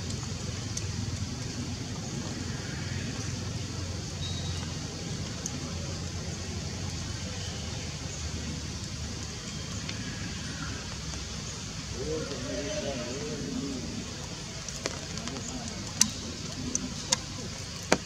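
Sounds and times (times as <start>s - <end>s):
even hiss: 1.4s - 18.0s
low background rumble: 11.5s - 17.8s.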